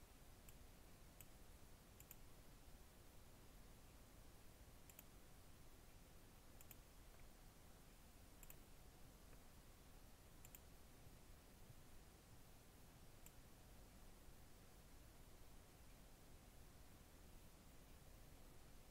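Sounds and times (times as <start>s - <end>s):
low steady hiss: 0.0s - 18.9s
computer mouse clicks: 0.4s - 0.6s, 1.2s - 1.4s, 2.0s - 2.2s, 4.8s - 5.2s, 6.6s - 7.3s, 8.4s - 8.7s, 10.4s - 10.7s, 13.2s - 13.4s.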